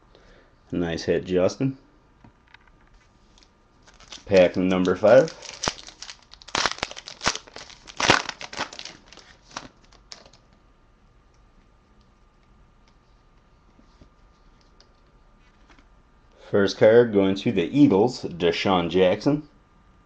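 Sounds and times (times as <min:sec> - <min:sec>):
wrapper tearing and crinkling: 0:03.3 - 0:10.4.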